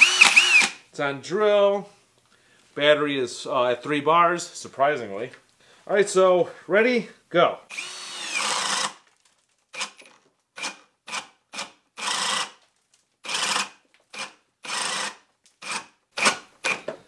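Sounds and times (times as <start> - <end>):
drill boring into wood: 0.0 - 0.8, 7.7 - 9.0, 9.7 - 12.6, 13.2 - 16.9.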